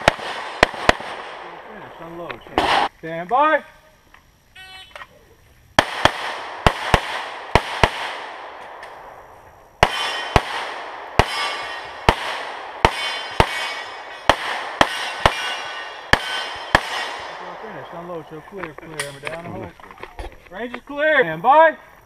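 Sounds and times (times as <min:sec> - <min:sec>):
pistol shots echoing: 0:00.0 - 0:01.8, 0:02.5 - 0:02.9, 0:05.8 - 0:09.1, 0:09.8 - 0:18.2.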